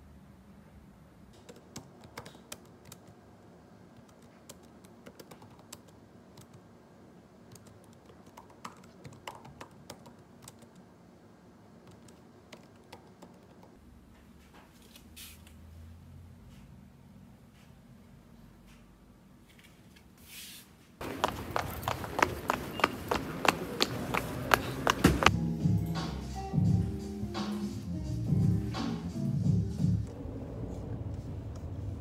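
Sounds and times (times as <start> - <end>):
laptop keyboard typing: 1.4 - 3.2, 4.0 - 6.6, 7.5 - 10.8, 11.9 - 13.8.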